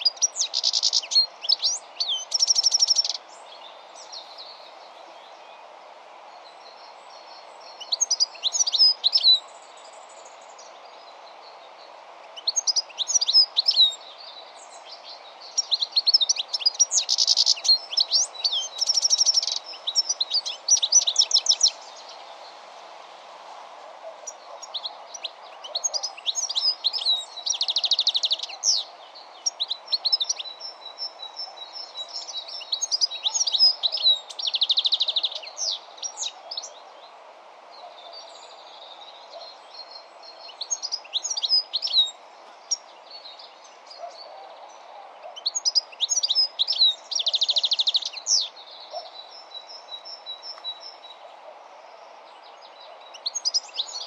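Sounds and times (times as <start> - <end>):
goldfinch singing: 0.0 - 4.6.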